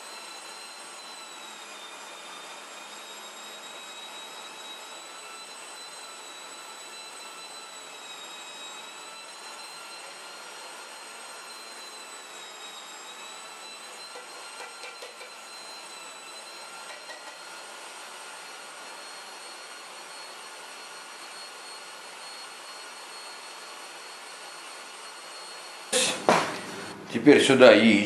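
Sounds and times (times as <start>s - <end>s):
meat grinder motor whining: 0.0s - 27.2s.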